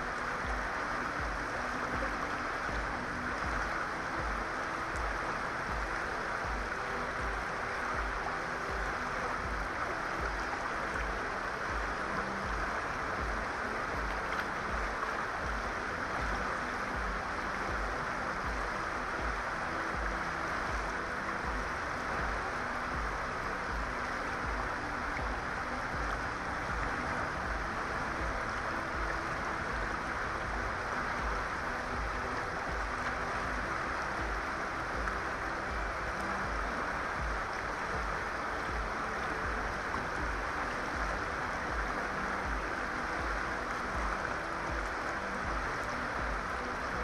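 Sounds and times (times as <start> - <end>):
river water rushing: 0.0 - 47.0.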